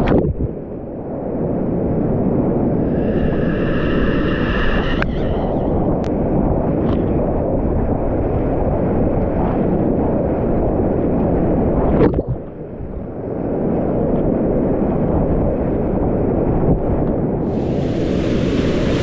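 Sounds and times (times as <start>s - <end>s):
sharp water splash: 17.5s - 19.0s
whitewater rapids roaring: 17.5s - 19.0s.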